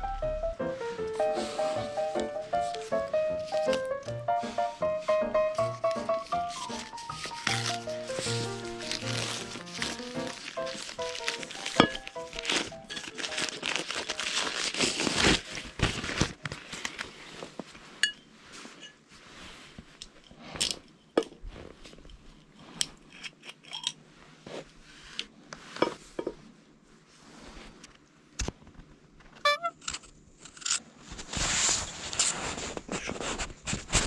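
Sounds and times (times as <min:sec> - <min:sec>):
cloth rustling: 0:00.8 - 0:20.6.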